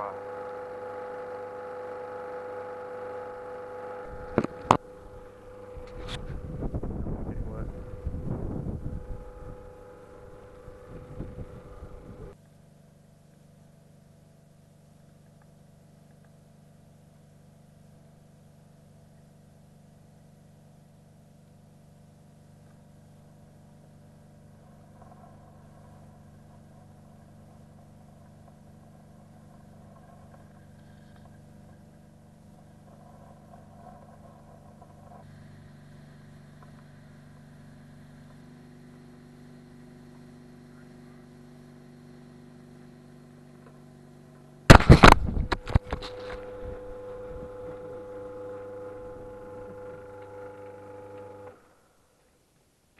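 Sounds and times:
muffled pump hum: 0.0s - 51.6s.

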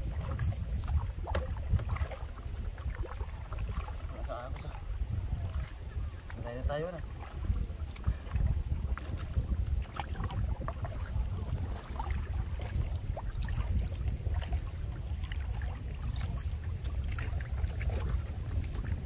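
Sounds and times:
water splashes and drips: 0.0s - 19.0s
wind buffeting microphone: 0.0s - 19.0s.

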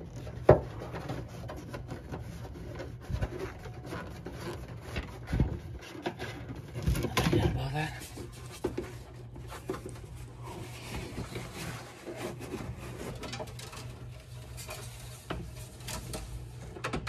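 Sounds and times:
hands rubbing on plastic liner: 7.6s - 13.2s.

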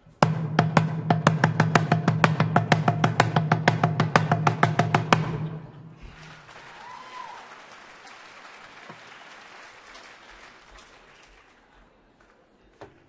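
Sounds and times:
drum stroke ringing: 0.0s - 5.8s
audience applause: 6.0s - 12.5s.

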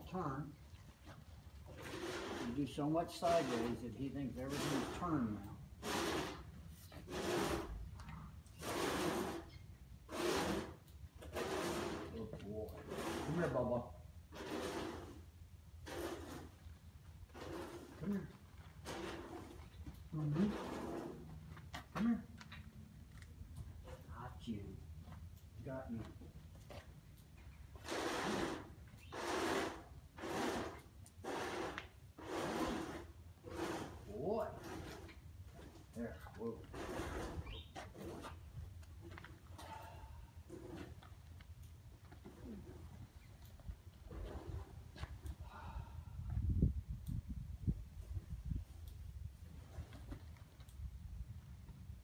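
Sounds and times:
person breathing: 45.4s - 46.4s.

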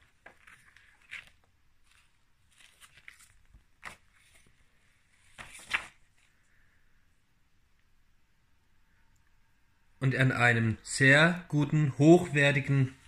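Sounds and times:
stiff paper rustling: 0.0s - 6.4s.

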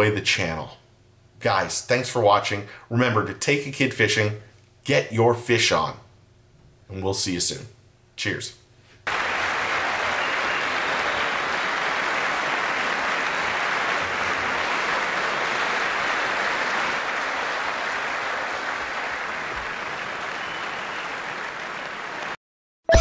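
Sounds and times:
crowd applauding: 9.1s - 22.4s.

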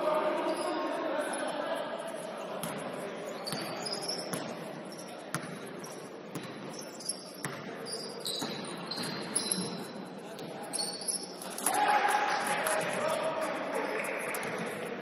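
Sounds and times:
general game noise: 0.0s - 15.0s
basketball bouncing on court: 3.5s - 4.6s, 5.3s - 6.8s, 7.4s - 9.7s.

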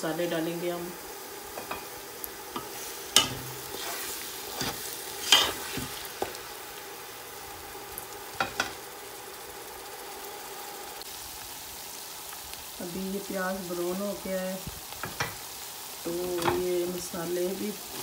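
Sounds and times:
onion paste sizzling in oil: 0.0s - 18.0s
spatula scraping and knocking pan: 1.6s - 2.0s, 2.6s - 6.4s.

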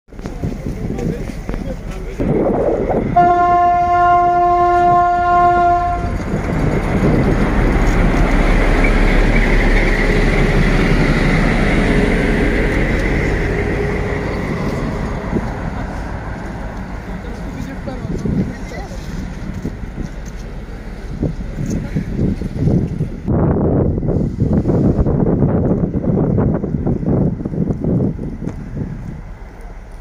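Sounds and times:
train wheels rolling on rails: 0.1s - 30.0s
locomotive horn: 3.2s - 6.3s
diesel engine running: 5.6s - 23.2s.

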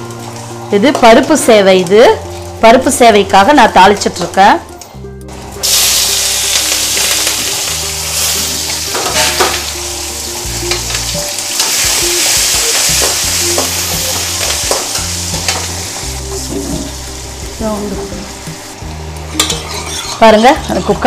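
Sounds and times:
chillies sizzling in oil: 0.0s - 4.7s, 5.3s - 21.0s
metal spatula scraping pan: 19.4s - 20.9s.

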